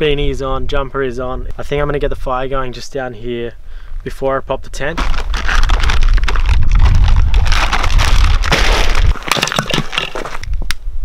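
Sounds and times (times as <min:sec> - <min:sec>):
crinkling bag of firewood: 0:05.0 - 0:10.6
low rumble: 0:05.1 - 0:09.3.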